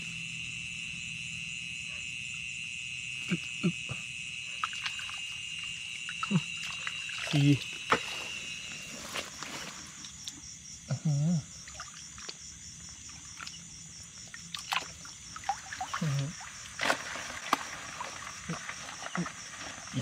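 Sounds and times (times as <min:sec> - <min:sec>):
insects trilling: 0:00.0 - 0:20.0
hand splashing in muddy puddle: 0:06.1 - 0:08.4, 0:14.3 - 0:20.0.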